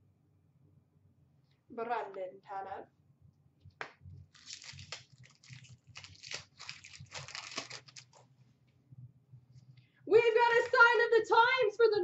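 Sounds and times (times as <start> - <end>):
foil wrapper crinkling and tearing: 4.3 - 8.3.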